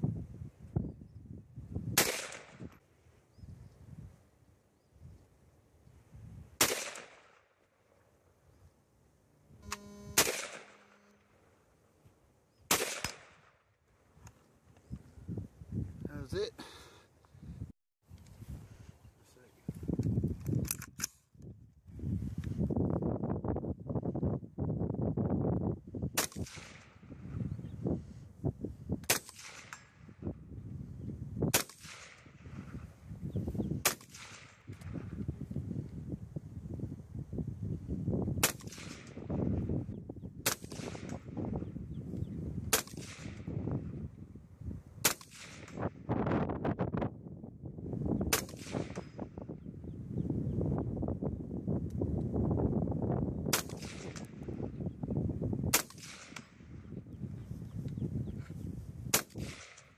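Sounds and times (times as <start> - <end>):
rifle shots with echo: 2.0 - 2.7, 6.6 - 7.6, 10.2 - 11.0, 12.7 - 13.7, 26.2 - 27.2, 29.0 - 30.1, 31.5 - 32.7, 33.8 - 35.0, 38.4 - 39.4, 40.4 - 41.3, 42.7 - 43.5, 45.0 - 46.1, 48.3 - 49.4, 53.5 - 54.5, 55.7 - 56.8, 59.1 - 59.9.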